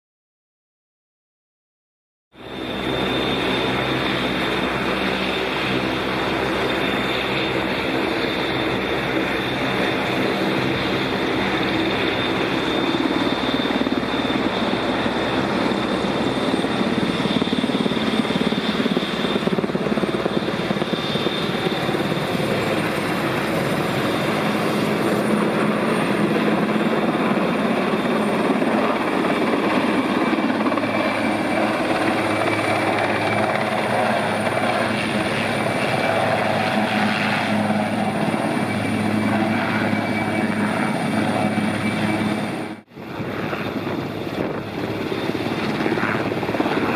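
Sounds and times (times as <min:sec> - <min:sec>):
helicopter rotors beating: 0:02.4 - 0:46.9
high turbine whine: 0:02.4 - 0:46.9.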